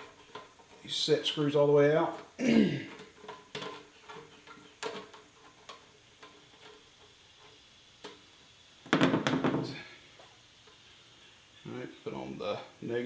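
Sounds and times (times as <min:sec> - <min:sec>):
clatter of knocks: 0:08.9 - 0:09.8.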